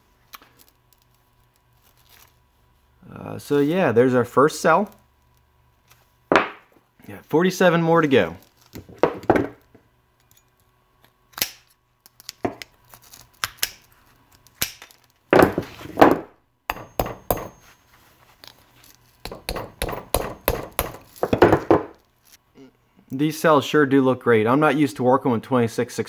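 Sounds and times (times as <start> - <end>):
hammer tapping metal: 16.7 - 17.7, 19.2 - 21.8.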